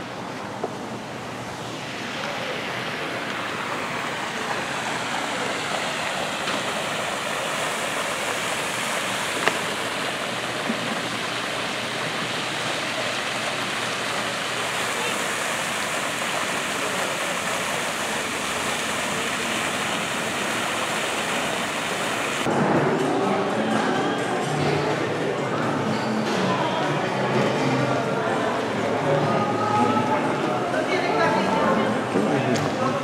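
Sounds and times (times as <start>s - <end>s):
fountain jet splashing into water: 1.6s - 22.5s.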